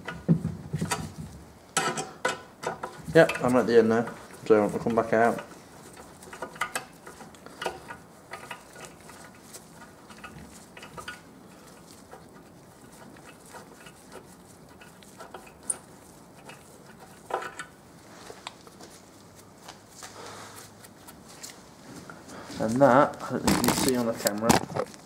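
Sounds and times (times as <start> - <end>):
metal tap clicking and scraping: 1.8 - 17.8.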